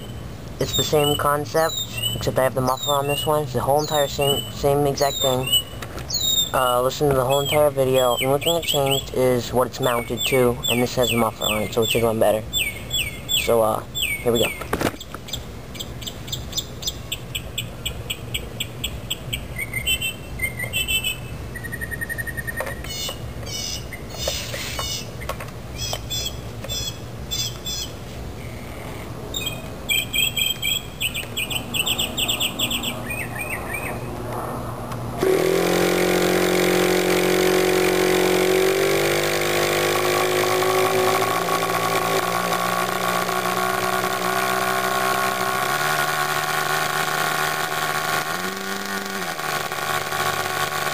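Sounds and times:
birds chirping: 0.0s - 50.4s
small two-stroke engine running: 6.2s - 12.2s, 35.1s - 50.9s
electric starter spinning: 35.2s - 50.9s.

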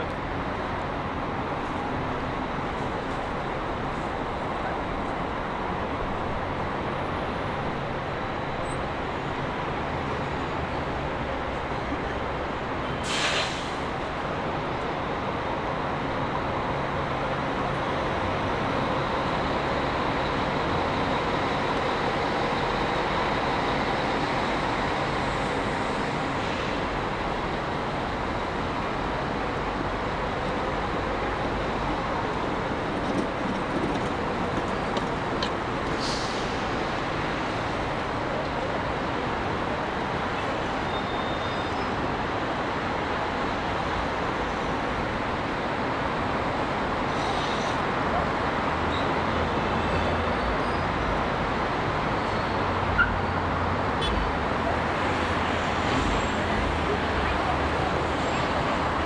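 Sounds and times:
road traffic noise: 0.0s - 59.0s
brief hiss: 13.0s - 13.9s, 35.9s - 36.7s.

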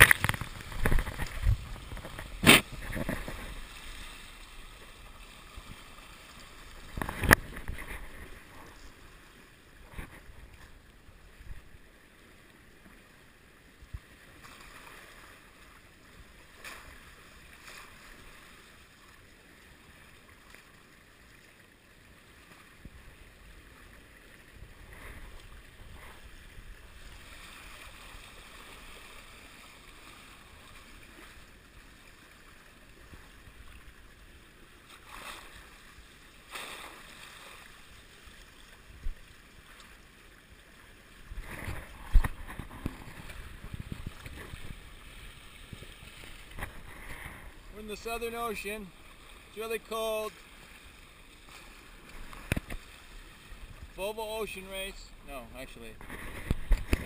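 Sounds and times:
water slapping against hull: 0.0s - 9.0s, 41.2s - 54.0s, 55.8s - 57.0s
water rushing past hulls: 0.0s - 57.0s.

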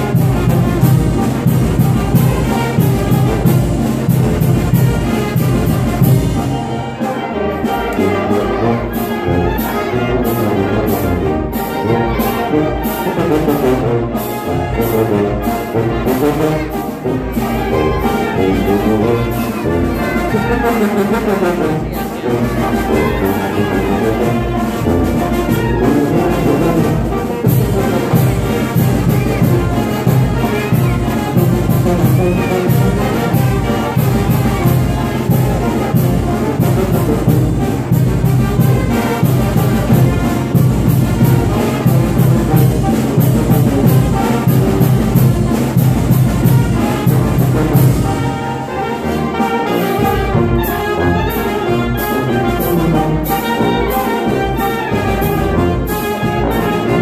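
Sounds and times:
brass band playing dance tune: 0.0s - 57.0s.

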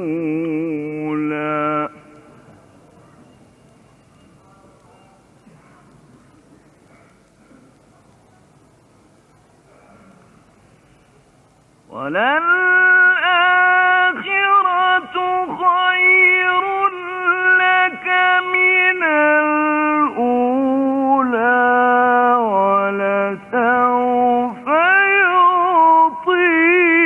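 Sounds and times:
man reciting in melodic voice: 0.0s - 2.4s, 11.9s - 27.0s.

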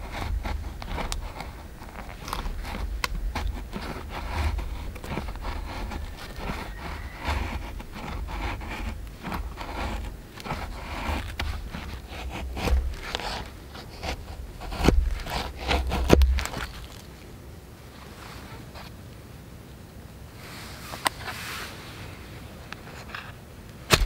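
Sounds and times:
knife shaving wooden stick: 0.0s - 17.1s.

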